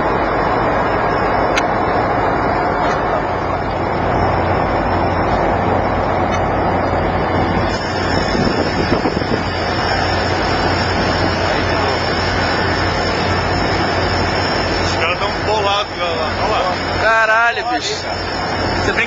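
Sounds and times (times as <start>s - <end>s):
low machinery hum: 0.0s - 19.0s
wind blowing on microphone: 7.2s - 11.5s.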